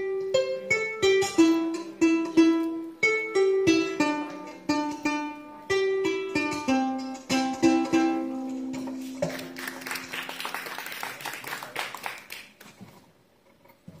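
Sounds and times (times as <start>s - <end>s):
harp being plucked: 0.0s - 9.8s.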